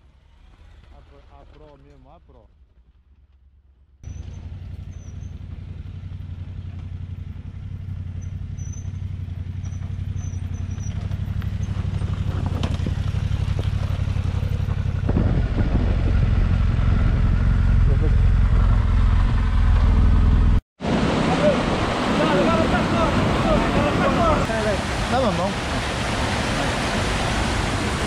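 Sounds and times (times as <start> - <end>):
motorcycle engines running: 4.0 - 20.6.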